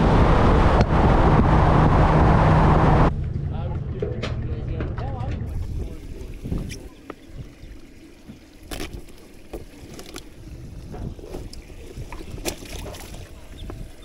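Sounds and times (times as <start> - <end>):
wind rumbling on microphone: 0.0 - 3.5, 5.4 - 7.9, 9.4 - 14.0.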